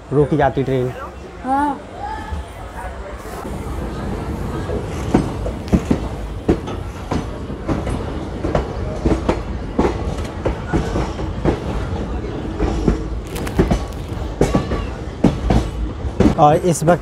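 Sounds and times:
train rumbling: 0.0s - 17.0s
wheels clacking over rail joints: 4.0s - 17.0s.

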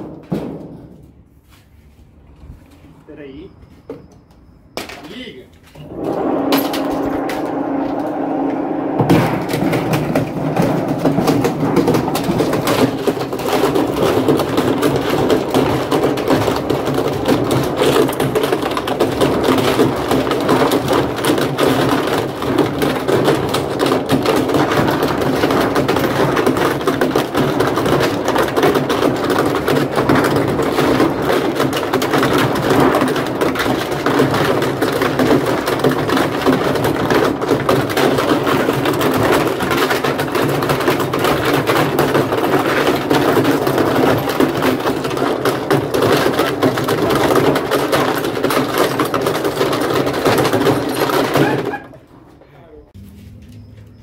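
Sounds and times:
fragments clattering in drum: 0.0s - 1.0s, 5.9s - 52.1s
washing machine motor drone: 5.8s - 13.0s.

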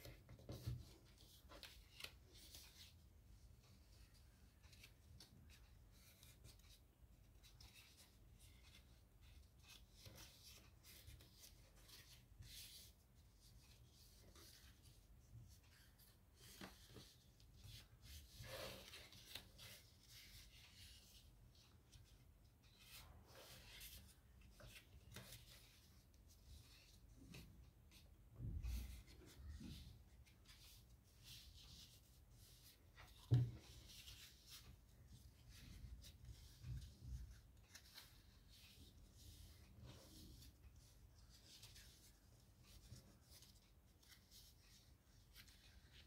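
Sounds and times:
paper rustling and creasing: 3.6s - 28.1s.

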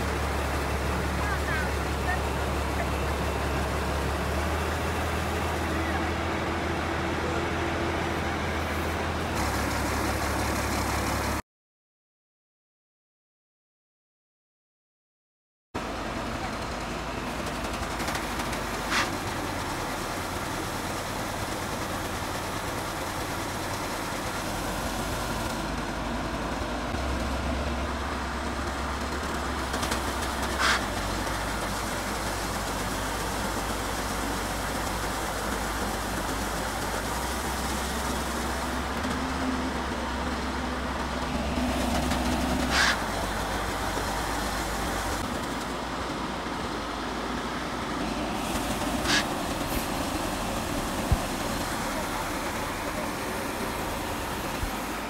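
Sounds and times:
harvester engine running: 0.0s - 11.4s, 15.8s - 55.0s
auger pouring rice hissing: 8.6s - 11.4s, 17.9s - 25.6s, 27.0s - 45.4s, 47.5s - 55.0s.

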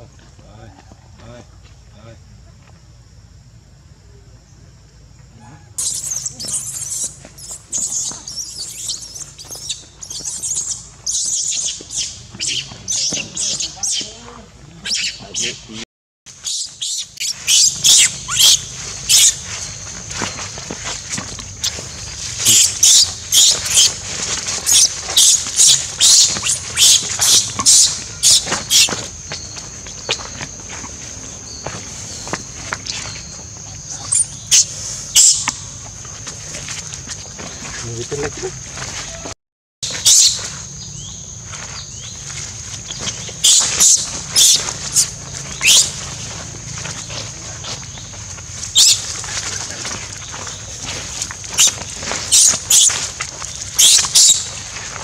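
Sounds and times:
baby monkey screaming: 5.6s - 14.1s, 14.8s - 15.6s, 16.4s - 19.5s, 22.4s - 28.9s, 34.0s - 35.6s, 40.0s - 40.4s, 43.4s - 46.0s, 48.8s - 49.1s, 51.6s - 53.0s, 53.8s - 54.5s.

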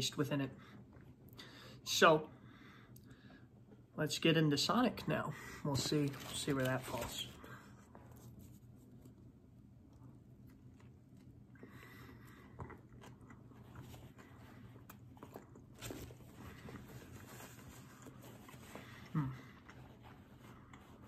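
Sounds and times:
person chewing crunchy food: 9.8s - 21.0s.

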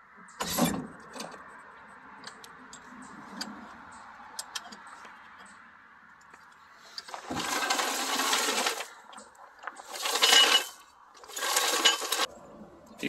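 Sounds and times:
floor jack dragged over gravel: 7.0s - 9.0s, 9.6s - 12.3s.

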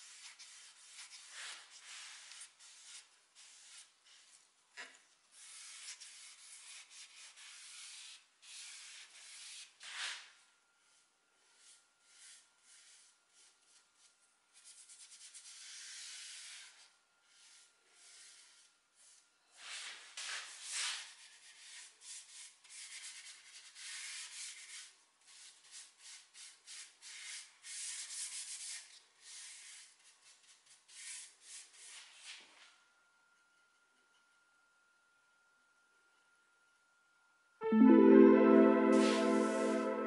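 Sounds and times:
paintbrush swishing on wood: 5.4s - 10.2s, 39.0s - 40.0s.

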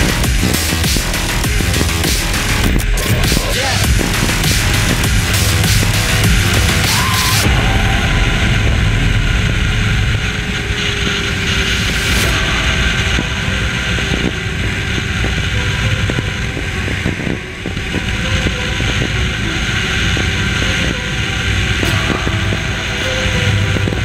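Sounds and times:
motorcycle engine running: 0.0s - 7.8s
wind rush on microphone: 0.0s - 24.0s.

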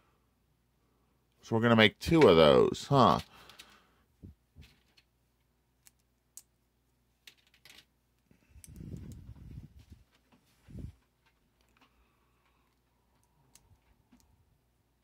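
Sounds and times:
plastic pieces clicking on metal tray: 7.3s - 7.9s.

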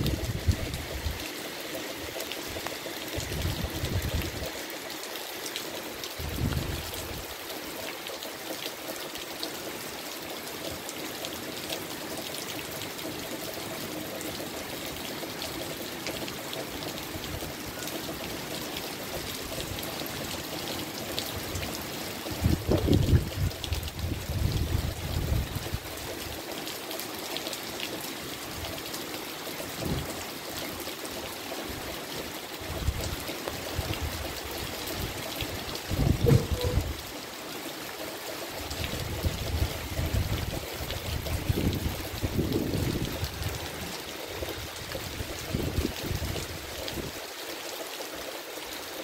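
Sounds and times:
wind gusts on microphone: 0.0s - 1.2s, 3.2s - 4.4s, 6.2s - 7.2s, 22.4s - 25.8s, 35.8s - 37.0s, 38.8s - 43.6s, 44.6s - 47.2s
rain on foliage: 0.0s - 49.0s.

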